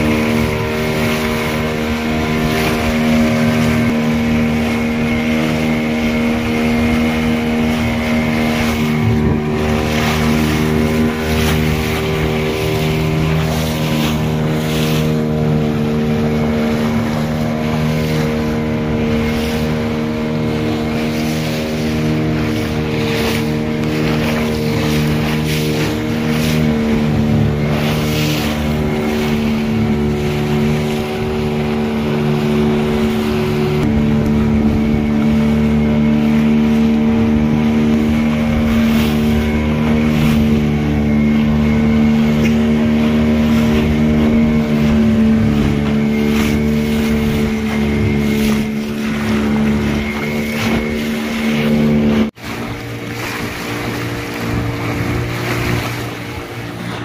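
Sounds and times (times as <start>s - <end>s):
engine humming: 0.0s - 57.0s
wind noise: 22.1s - 57.0s.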